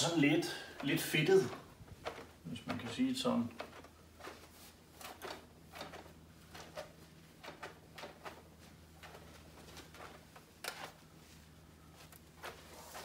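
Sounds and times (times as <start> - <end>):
faint low hum: 0.0 - 13.0
cloth wiping swishes: 11.0 - 13.0.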